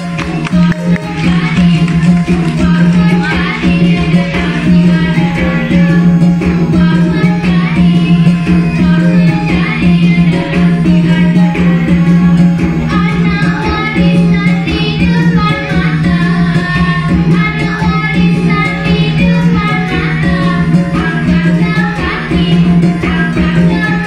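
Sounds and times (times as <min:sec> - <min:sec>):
person singing: 0:00.0 - 0:12.3, 0:12.9 - 0:24.0.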